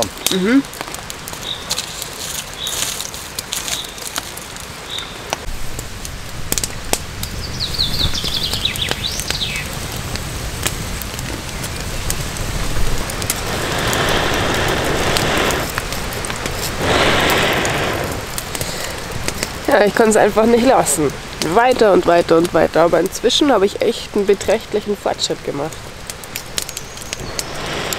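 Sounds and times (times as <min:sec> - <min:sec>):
campfire crackling and popping: 0:00.0 - 0:27.9
rain pattering: 0:00.0 - 0:27.9
person blowing on ember: 0:13.0 - 0:19.1, 0:27.2 - 0:27.9.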